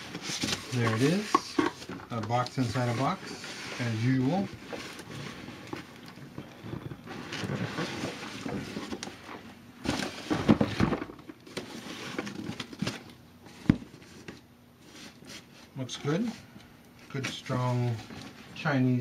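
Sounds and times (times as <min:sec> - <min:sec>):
cardboard rubbing and scraping: 0:06.7 - 0:09.3
box bumps: 0:09.8 - 0:11.3.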